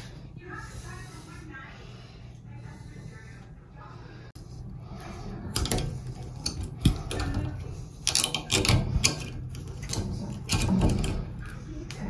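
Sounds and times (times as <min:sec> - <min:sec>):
metal pick scraping and clicking: 0:05.5 - 0:11.3.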